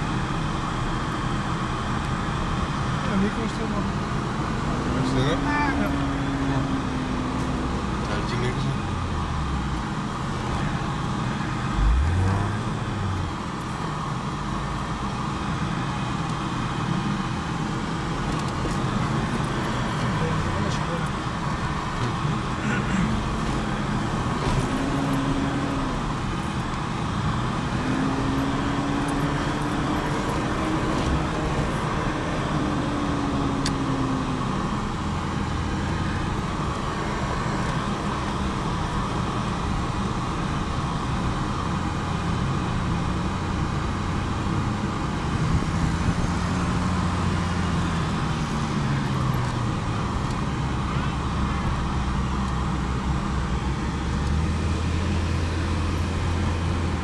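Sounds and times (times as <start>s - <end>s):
rumble of drivetrain and tyres: 0.0s - 57.0s
engine revving under load: 2.9s - 13.6s, 18.2s - 40.7s.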